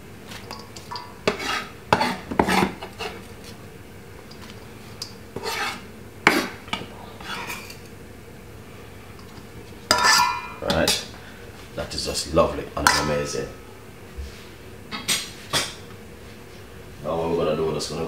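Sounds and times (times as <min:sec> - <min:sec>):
knife scraping wooden board: 0:01.2 - 0:03.3, 0:05.4 - 0:06.6, 0:07.2 - 0:07.7.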